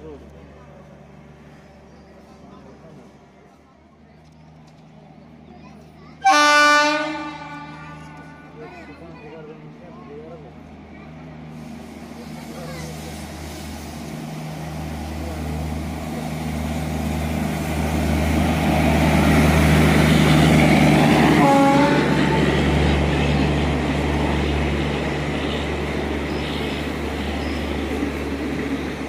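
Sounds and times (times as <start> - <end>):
coaches rumbling on track: 0.0 - 29.0
electric locomotive hum: 0.0 - 29.0
train rail noise: 0.0 - 29.0
train horn note: 6.2 - 8.5, 21.3 - 22.4.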